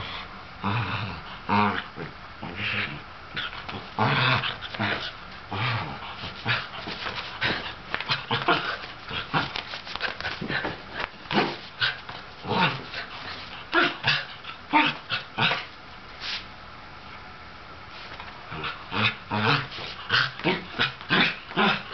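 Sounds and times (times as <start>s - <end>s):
dog making play noises: 1.4s - 15.8s.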